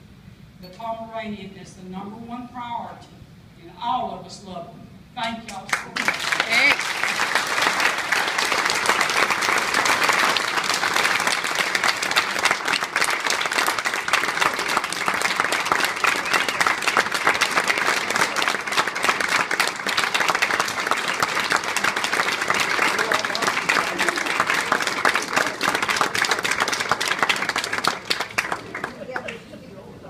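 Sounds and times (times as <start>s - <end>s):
audience applauding: 5.7s - 29.5s.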